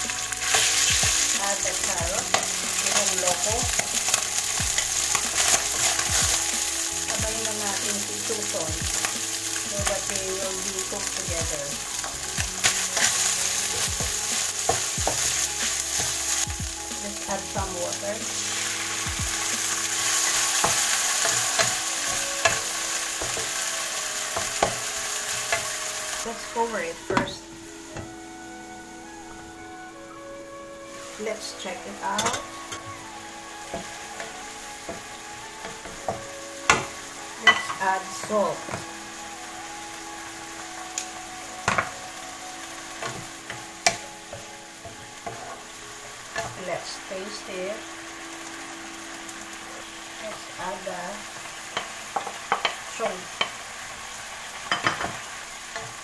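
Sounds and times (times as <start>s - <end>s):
spatula stirring in wok: 0.0s - 10.1s, 10.8s - 17.1s
vegetables and pork sizzling in wok: 0.0s - 56.0s.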